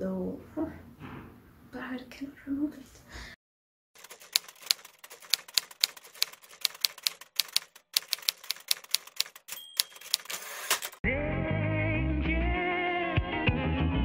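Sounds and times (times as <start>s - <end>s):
typewriter bell ding: 4.0s - 11.0s
typewriter carriage rasping slide: 4.0s - 11.0s
typewriter key strikes: 4.0s - 11.0s.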